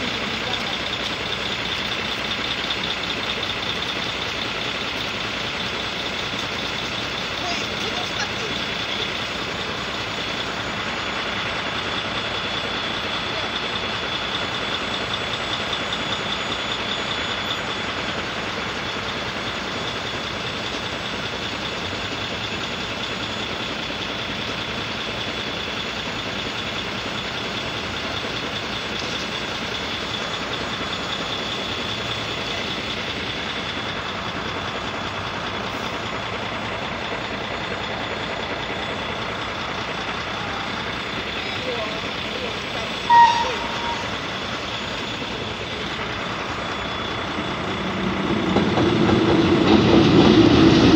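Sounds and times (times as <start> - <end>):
vehicles idling rumble: 0.0 - 50.9
level crossing bell ringing: 43.0 - 44.4.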